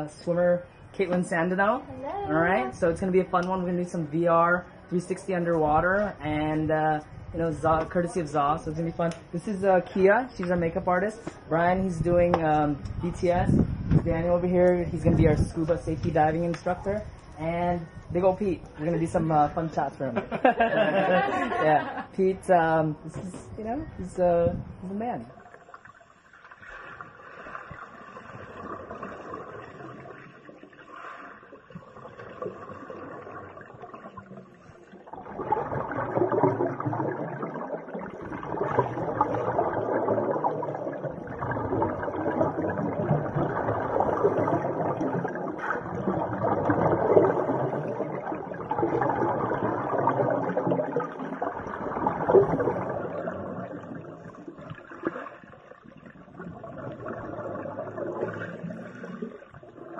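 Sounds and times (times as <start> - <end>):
underwater bubbles gurgling: 24.5 - 59.9.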